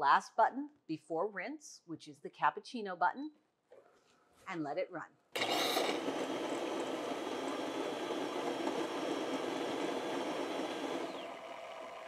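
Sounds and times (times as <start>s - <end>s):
coffee machine running: 5.4s - 12.0s
milk frother rushing: 5.4s - 12.0s.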